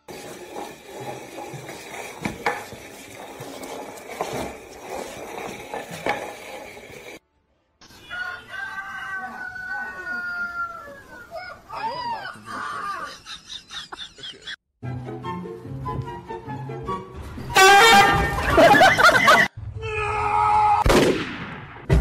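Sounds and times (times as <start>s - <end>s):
pot scraping across tiled floor: 0.0s - 7.2s
rooster crowing: 8.0s - 12.0s.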